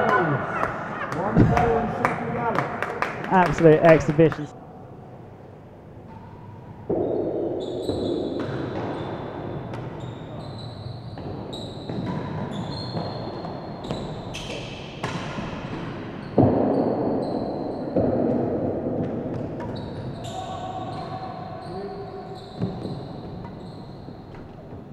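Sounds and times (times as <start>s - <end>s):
ball hitting racquets and walls: 6.2s - 10.2s, 11.1s - 20.4s, 22.6s - 23.6s
shoes squeaking on court: 7.6s - 14.7s, 19.4s - 24.9s.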